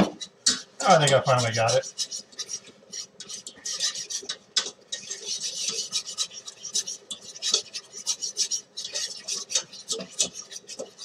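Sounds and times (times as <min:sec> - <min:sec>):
whisk scraping metal saucepan: 0:00.0 - 0:11.0.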